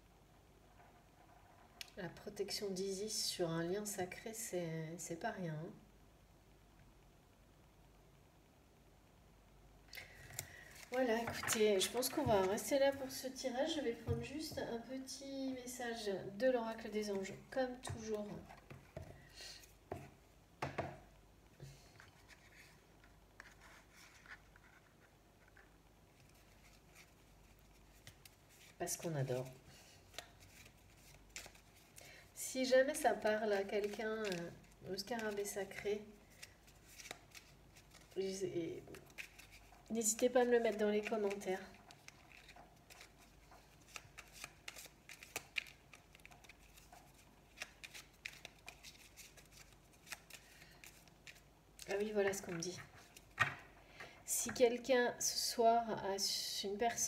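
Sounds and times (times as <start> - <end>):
cards rustling: 10.0 - 13.2, 23.4 - 32.3, 33.0 - 53.6.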